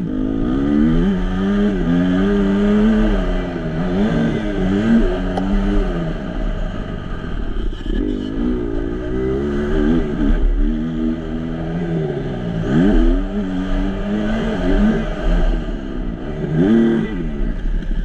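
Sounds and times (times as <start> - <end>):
motocross engine revving: 0.0 - 18.0.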